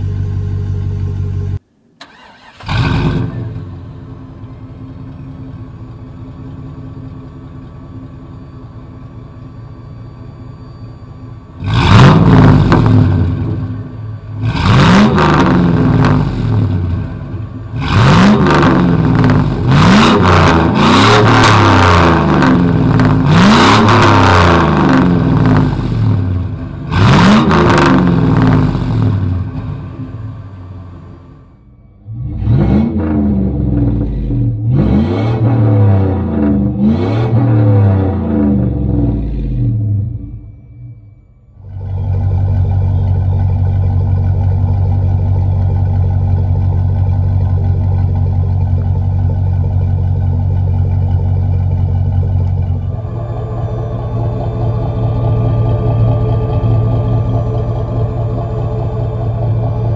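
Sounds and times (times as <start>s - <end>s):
truck engine revving: 2.0s - 4.3s, 11.5s - 40.6s, 50.4s - 59.9s
another truck idling: 3.2s - 34.8s, 35.4s - 59.9s.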